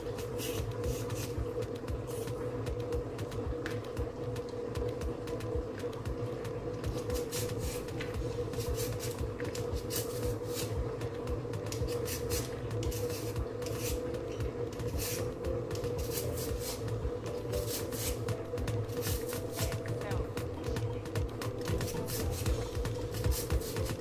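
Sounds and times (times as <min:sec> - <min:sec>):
peeler scraping potato skin: 0:00.0 - 0:01.4, 0:06.9 - 0:10.8, 0:11.7 - 0:19.7, 0:21.7 - 0:24.0
steady low hum: 0:00.0 - 0:24.0.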